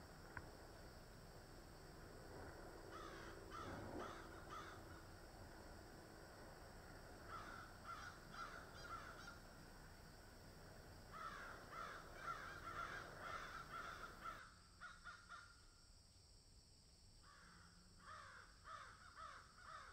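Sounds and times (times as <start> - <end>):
crows cawing: 2.8 - 5.2, 7.2 - 9.6, 11.1 - 15.6, 17.3 - 19.9.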